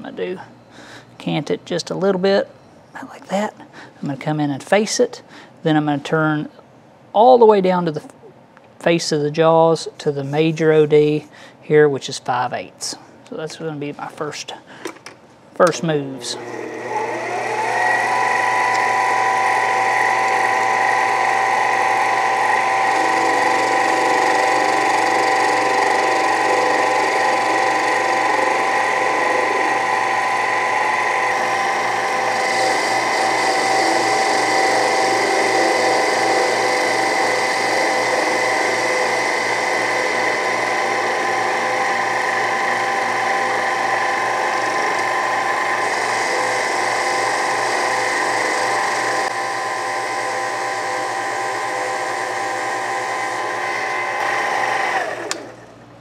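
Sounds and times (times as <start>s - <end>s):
lathe motor whining: 15.7s - 55.8s
lathe tool cutting metal: 16.2s - 55.5s.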